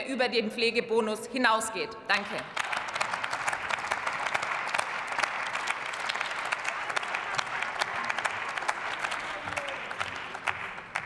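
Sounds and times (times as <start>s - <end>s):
crowd applauding: 2.3s - 11.0s.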